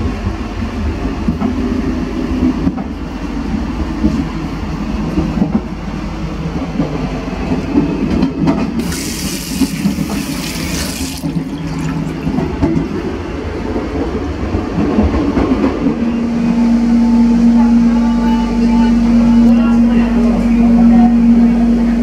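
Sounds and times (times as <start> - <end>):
train rumble: 0.0 - 22.0
tap running water into sink: 8.8 - 12.2.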